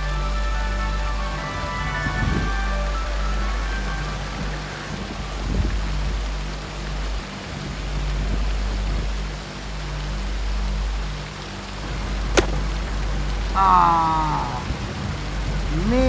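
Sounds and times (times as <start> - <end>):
river rushing over stones: 4.6 - 16.0.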